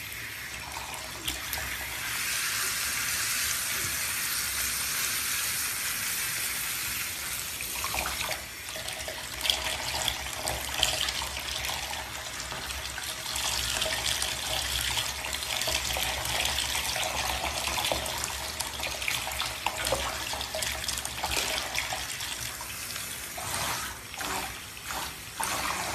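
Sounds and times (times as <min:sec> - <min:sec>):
shower water spraying: 0:00.0 - 0:08.7, 0:19.8 - 0:25.9.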